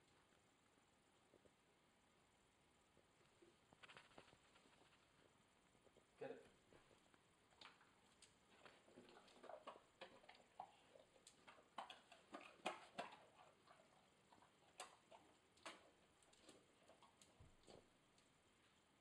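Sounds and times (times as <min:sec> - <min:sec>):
dog eating: 0:05.9 - 0:19.0.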